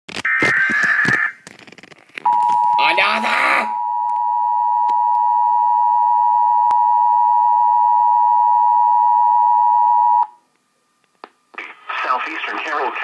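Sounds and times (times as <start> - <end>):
two-tone alarm: 2.3 - 10.4.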